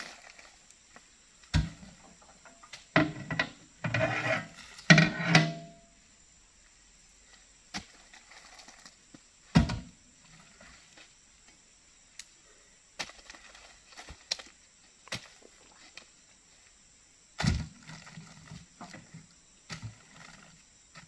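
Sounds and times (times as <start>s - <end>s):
fruit bunches thudding onto truck: 9.5s - 9.9s, 17.4s - 18.1s.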